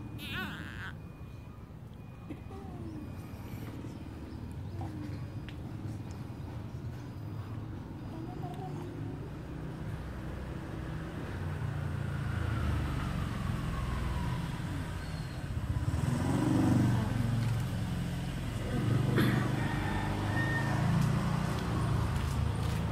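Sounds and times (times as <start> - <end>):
motorcycles passing: 0.0 - 1.0, 8.7 - 22.9.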